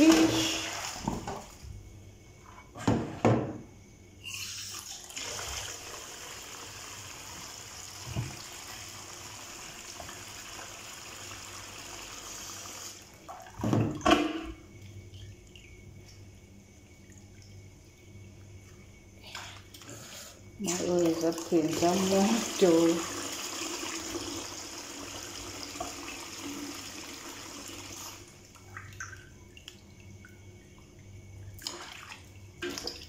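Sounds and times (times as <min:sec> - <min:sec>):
water sloshing as hands rinse: 0:00.0 - 0:01.7, 0:20.6 - 0:23.1, 0:27.9 - 0:33.0
tap water running into metal basin: 0:20.7 - 0:28.2.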